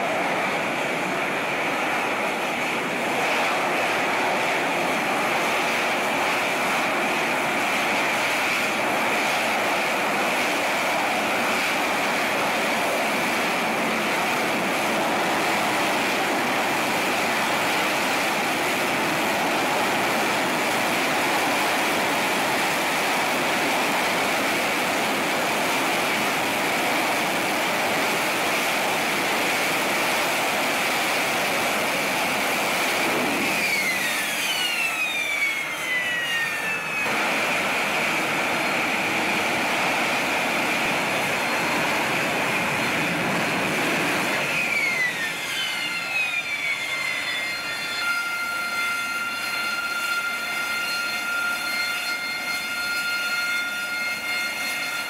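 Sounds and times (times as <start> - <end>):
jet engine rush with high whine: 0.0 - 55.0
descending whistles: 32.8 - 37.8, 44.2 - 55.0.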